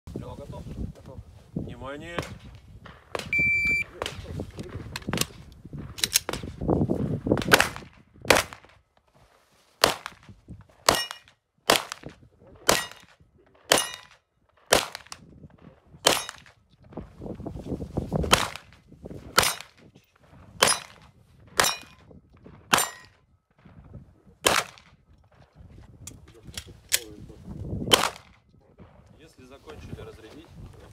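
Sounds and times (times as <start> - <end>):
pistol shots: 10.9 - 12.1, 12.7 - 13.1, 13.7 - 15.2, 16.0 - 16.5, 19.4 - 19.8, 21.6 - 22.0, 24.4 - 24.9, 27.9 - 28.4.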